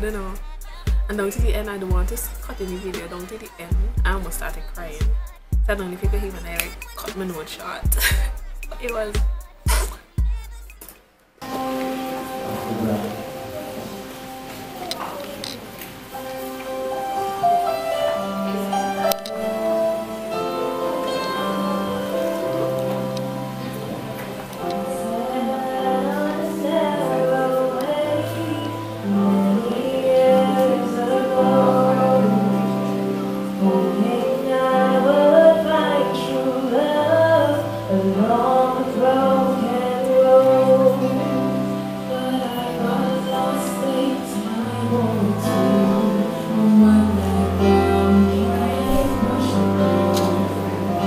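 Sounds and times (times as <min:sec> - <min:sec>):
women singing a slow ballad: 0:00.0 - 0:10.5, 0:23.1 - 0:51.0
backing track with bass notes: 0:00.0 - 0:10.9.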